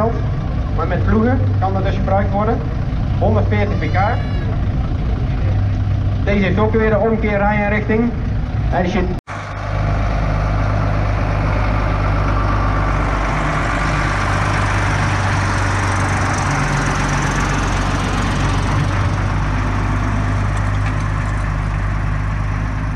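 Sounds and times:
tractor diesel engine at low revs: 0.0s - 22.9s.

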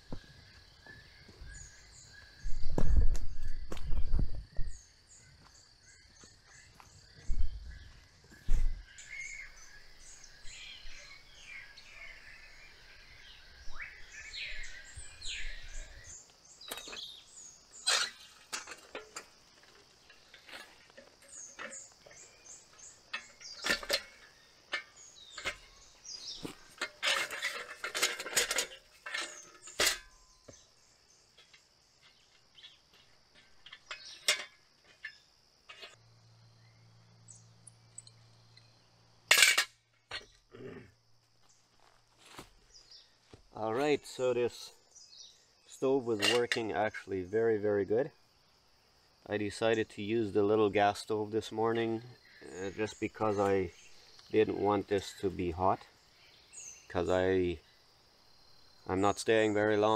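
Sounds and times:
birds chirping: 0.0s - 59.9s
metal clinks of a wood stove: 17.8s - 30.4s, 33.3s - 36.0s, 46.1s - 47.1s.

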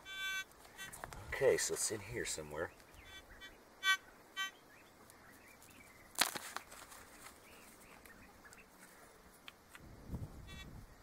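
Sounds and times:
metal detector beep: 0.0s - 1.0s, 3.0s - 4.6s, 10.4s - 10.7s.

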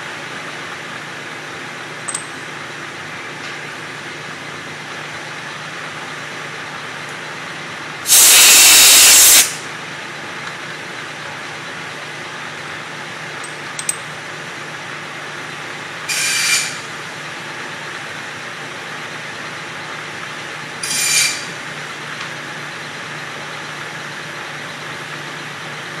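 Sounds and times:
loud hissing bursts: 8.1s - 9.6s.

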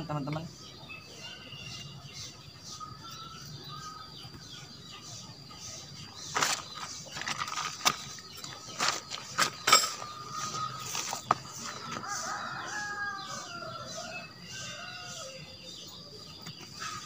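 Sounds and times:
faint bird chirps: 0.0s - 17.0s
nylon tent fabric rustling: 6.3s - 9.7s.

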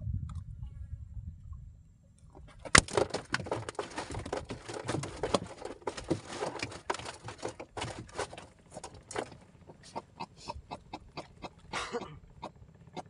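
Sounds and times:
fishing gear crackling and rustling: 2.3s - 9.9s.

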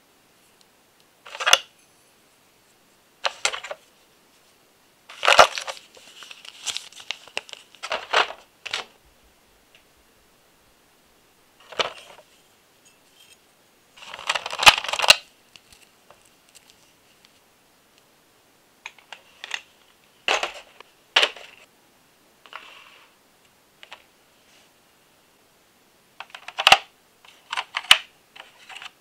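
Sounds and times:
soft rustle: 0.3s - 10.0s, 11.6s - 17.6s, 23.8s - 24.9s.

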